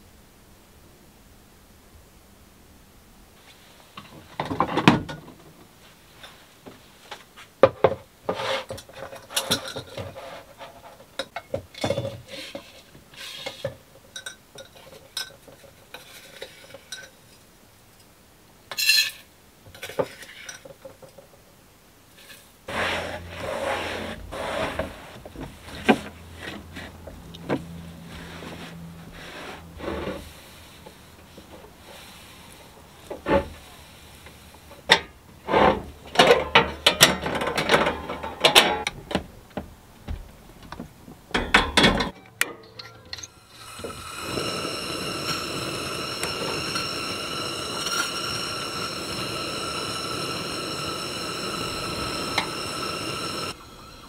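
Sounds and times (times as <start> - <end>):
cloth rubbing on plastic lid: 22.7 - 30.8
kitchenware clinking and knocking: 41.3 - 43.4.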